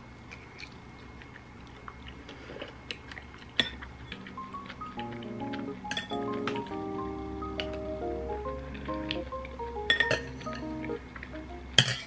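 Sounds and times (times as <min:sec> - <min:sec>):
faint chewing: 0:00.2 - 0:08.0
soft background music: 0:04.0 - 0:12.0.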